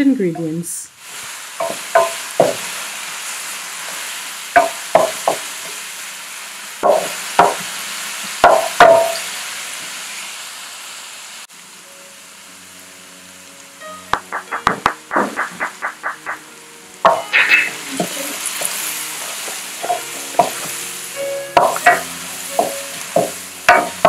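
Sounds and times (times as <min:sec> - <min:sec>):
vegetables sizzling in oil: 0:00.0 - 0:24.0
wooden spoon scraping a pan: 0:17.4 - 0:20.9.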